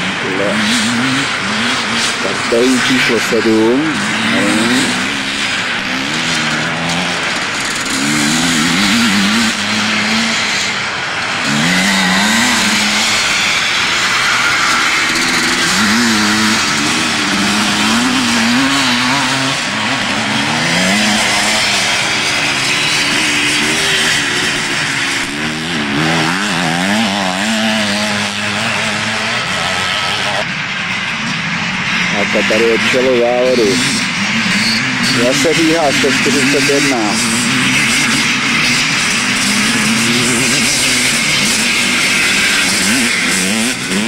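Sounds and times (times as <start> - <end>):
motorcycle engines revving: 0.0 - 44.0.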